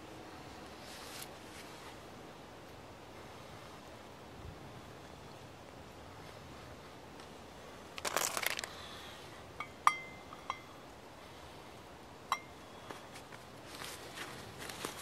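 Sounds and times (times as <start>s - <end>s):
steel pot clinking on metal: 9.6s - 10.7s, 12.3s - 12.5s.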